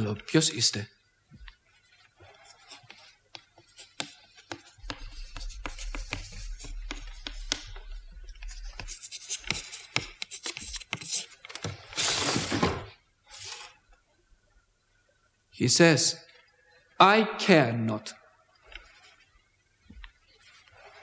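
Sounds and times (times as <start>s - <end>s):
chalk scratching on slate: 2.1s - 11.4s.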